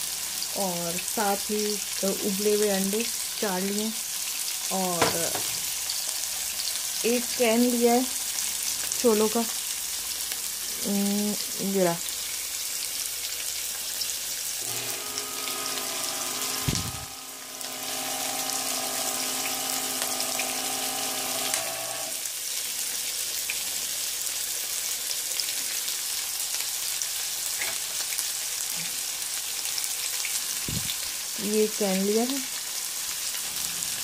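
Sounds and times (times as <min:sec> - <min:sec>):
oil sizzling in frying pan: 0:00.0 - 0:34.0
electric can opener whirring: 0:14.6 - 0:22.3.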